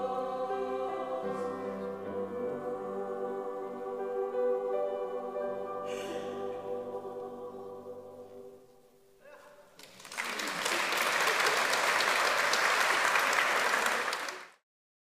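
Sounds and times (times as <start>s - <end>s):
audience applause: 9.8s - 14.6s.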